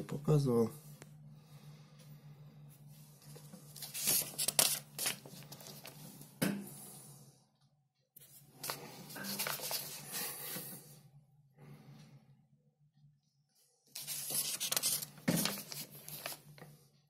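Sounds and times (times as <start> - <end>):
paper pages rustling: 3.2 - 6.3, 8.2 - 10.4, 13.9 - 16.7.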